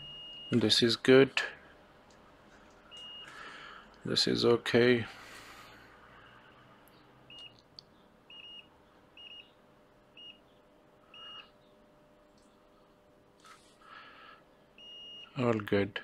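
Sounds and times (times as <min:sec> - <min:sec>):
multimeter beeping: 0:02.9 - 0:03.4, 0:07.3 - 0:07.6, 0:08.3 - 0:10.4, 0:11.1 - 0:11.5, 0:14.8 - 0:15.4.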